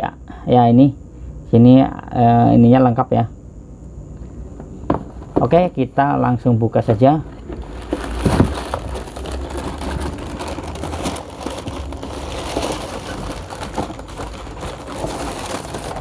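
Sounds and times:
tissue paper crinkling: 7.5s - 16.0s.

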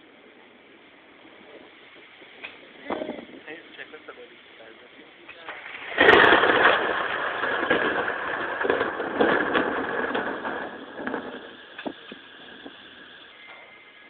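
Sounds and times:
thunderclap: 4.9s - 13.9s.

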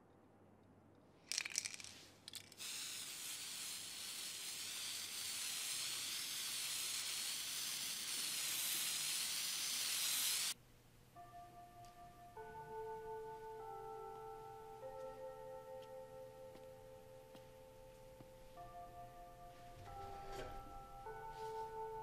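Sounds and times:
spray can rattling: 1.3s - 10.6s
spray can hissing: 1.4s - 10.6s.

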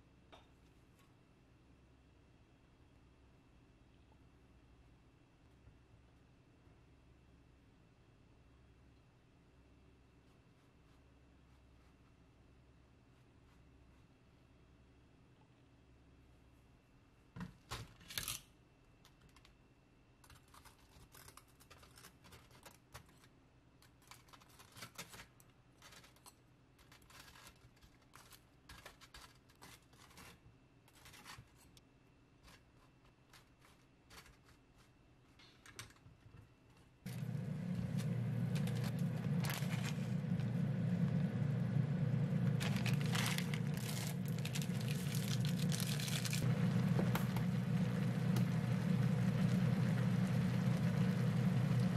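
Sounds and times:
seasoning packet crinkling: 37.1s - 51.8s
pot of water boiling: 37.1s - 51.9s.

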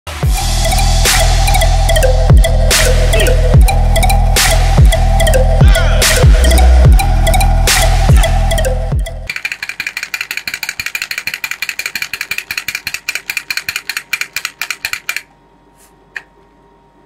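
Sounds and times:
toy drum rapid taps: 9.2s - 15.3s.

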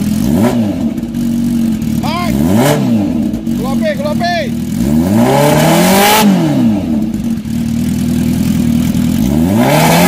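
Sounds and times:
motorcycle engine revving and idling: 0.0s - 10.0s.

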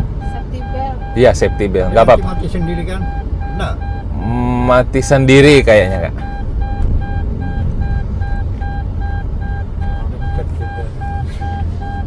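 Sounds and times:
moving car rumble: 0.0s - 12.0s
seatbelt reminder chime beeping: 0.2s - 4.0s.

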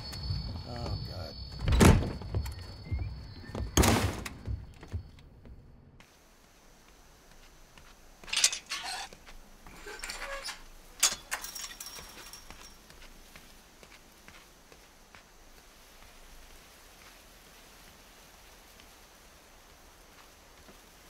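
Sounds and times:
door pulled open with knock: 1.6s - 2.7s
metallic clinks and rattles: 9.9s - 12.9s.

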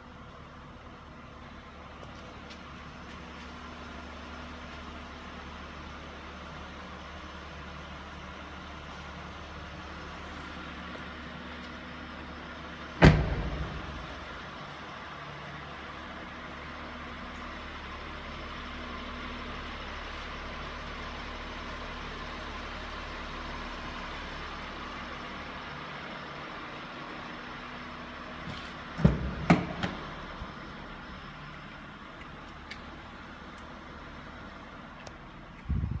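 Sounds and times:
car engine idling: 0.0s - 36.0s
car door clunks: 13.0s - 14.0s, 29.0s - 30.0s.

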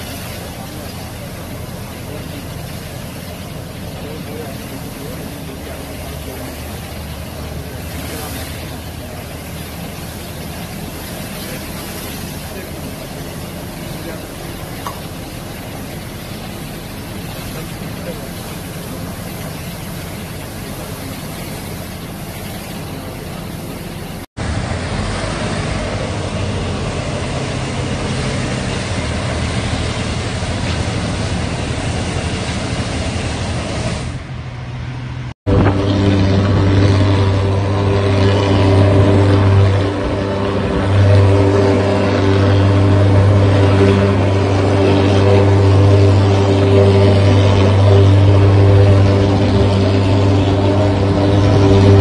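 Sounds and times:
pressure hose spraying hiss: 0.0s - 24.2s
fogging machine engine drone: 0.0s - 52.0s
truck engine and pump running: 0.0s - 52.0s.

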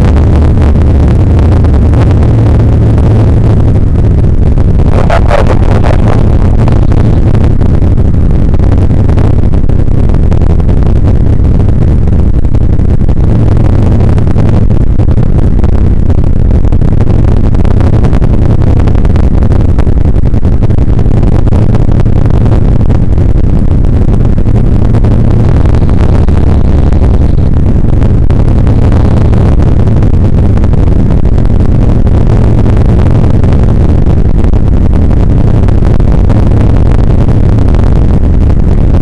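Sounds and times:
helicopter rotor and turbine engine: 0.9s - 17.4s.

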